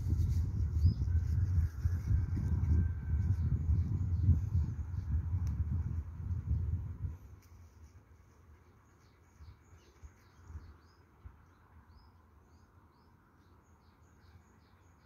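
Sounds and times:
bird chirping: 8.8s - 15.0s.

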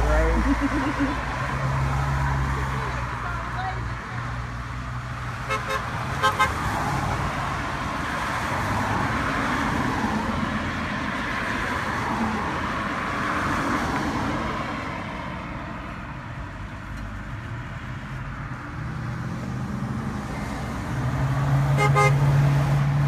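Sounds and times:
cars driving past: 0.0s - 23.0s
car horn toots: 5.5s - 6.6s, 21.8s - 22.2s.

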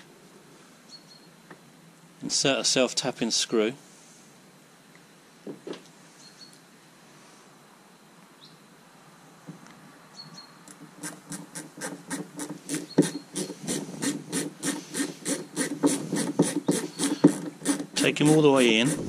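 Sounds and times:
screw grating into plastic: 11.0s - 19.0s.

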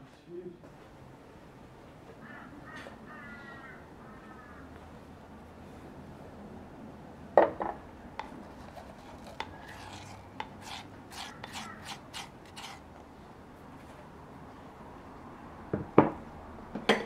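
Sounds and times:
quick scraping strokes: 8.2s - 12.9s.

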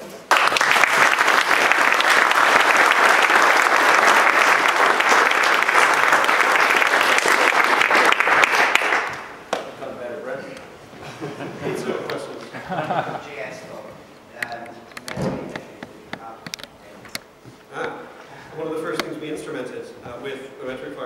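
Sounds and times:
audience applauding: 0.0s - 9.6s.

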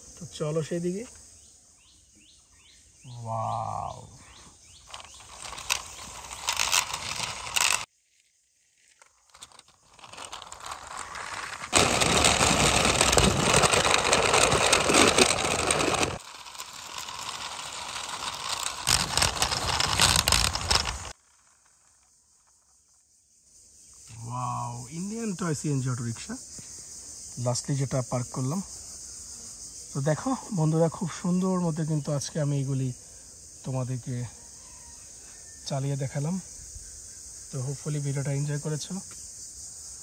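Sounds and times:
plastic wheels scraping on concrete: 4.3s - 7.9s, 8.7s - 22.0s.

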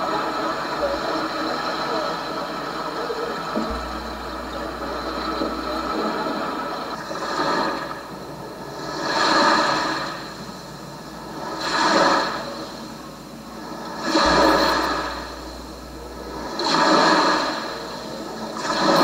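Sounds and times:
sea waves washing in: 0.0s - 19.0s
low rumble: 3.5s - 8.8s, 12.9s - 18.6s.

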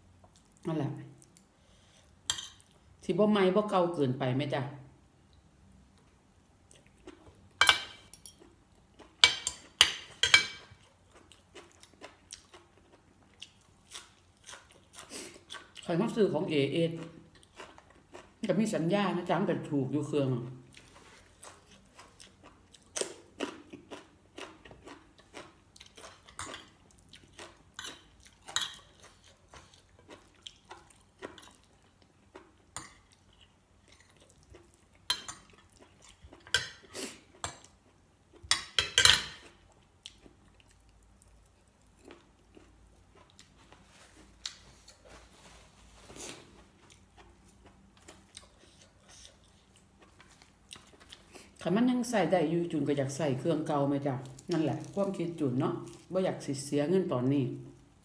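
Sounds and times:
chewing: 10.6s - 15.9s, 17.0s - 18.4s, 20.7s - 38.6s, 39.4s - 45.2s, 46.1s - 51.6s.

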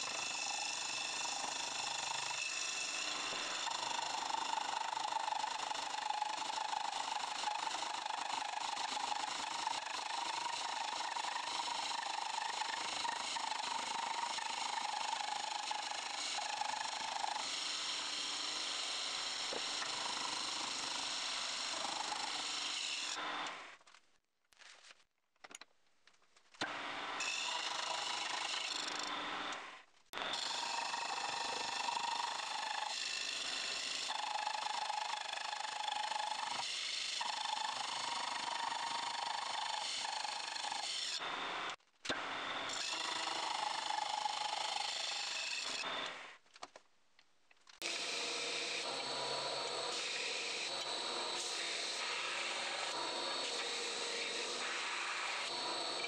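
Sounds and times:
saw cutting metal whir: 0.0s - 23.7s, 26.6s - 46.4s, 47.8s - 56.0s
belt grinder grinding metal: 47.8s - 56.0s.

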